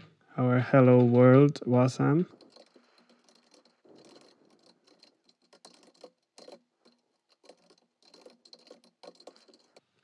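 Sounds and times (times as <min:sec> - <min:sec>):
typing on computer keyboard: 0:02.3 - 0:09.8.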